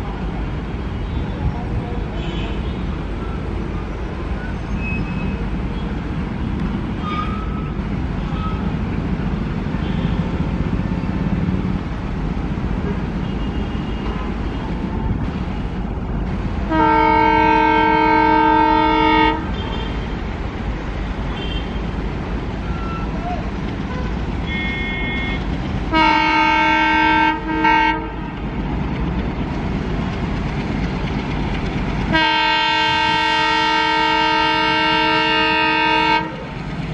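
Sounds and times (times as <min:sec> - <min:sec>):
diesel locomotive engine chugging: 0:00.0 - 0:36.9
train horn blast: 0:16.6 - 0:20.2, 0:23.9 - 0:28.4, 0:32.1 - 0:36.5.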